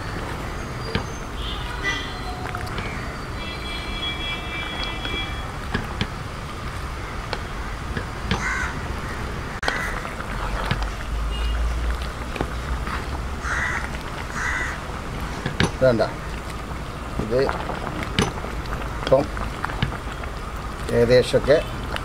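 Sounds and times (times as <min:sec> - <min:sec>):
crows cawing: 0:07.0 - 0:10.0, 0:13.4 - 0:14.8.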